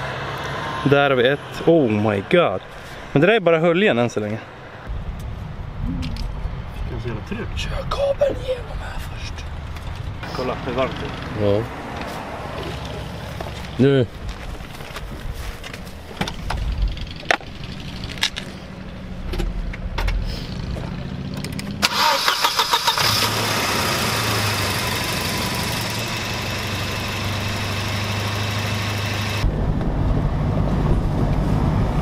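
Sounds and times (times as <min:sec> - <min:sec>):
engine cranking and idling: 0:19.2 - 0:29.5.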